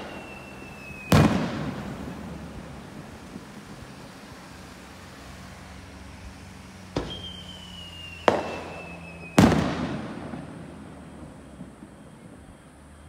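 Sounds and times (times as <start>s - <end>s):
thin falling whistle: 0.0s - 1.5s, 7.0s - 9.7s
firework shells bursting: 0.0s - 4.1s, 6.8s - 11.9s.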